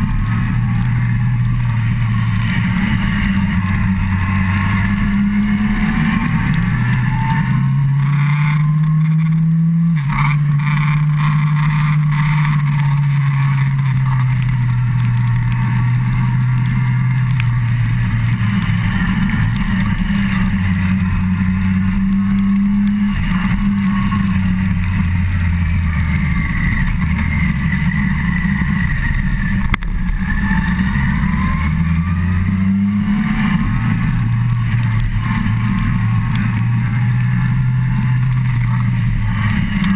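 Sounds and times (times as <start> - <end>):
motorcycle engine revving: 0.0 - 39.9
steady rushing noise: 0.0 - 39.9.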